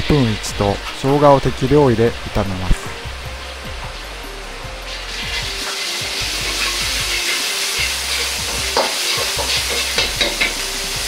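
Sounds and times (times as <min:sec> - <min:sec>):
sizzling in hot oil: 0:03.0 - 0:11.0
metal ladle scraping a wok: 0:04.9 - 0:10.7.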